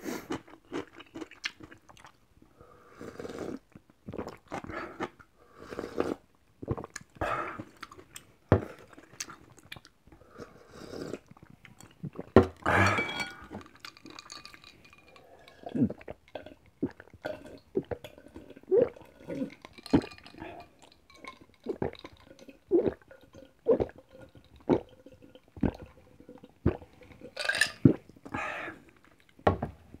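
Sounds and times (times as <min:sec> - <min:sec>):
person gulping water: 0:03.5 - 0:05.2, 0:06.0 - 0:10.3, 0:11.0 - 0:30.0.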